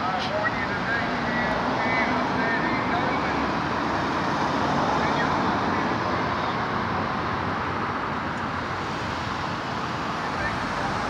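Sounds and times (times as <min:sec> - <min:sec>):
road traffic hum: 0:00.0 - 0:11.0.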